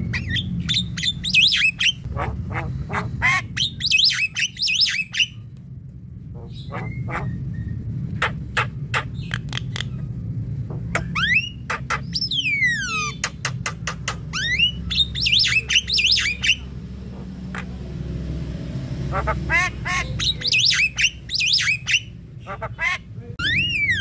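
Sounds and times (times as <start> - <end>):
steady low hum: 0.0 - 24.0
myna calling: 19.0 - 24.0.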